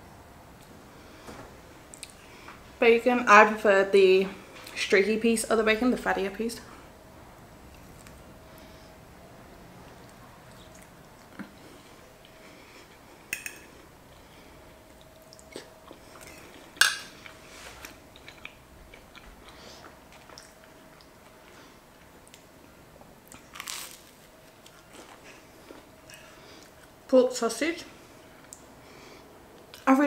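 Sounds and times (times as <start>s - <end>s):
faint steady hum: 0.0s - 30.0s
person chewing: 1.9s - 2.2s, 10.0s - 11.6s, 14.9s - 22.5s, 23.2s - 27.0s.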